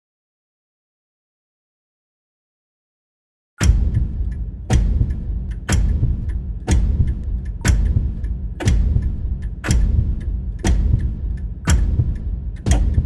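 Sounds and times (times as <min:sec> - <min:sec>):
low rumble: 0:03.6 - 0:13.0.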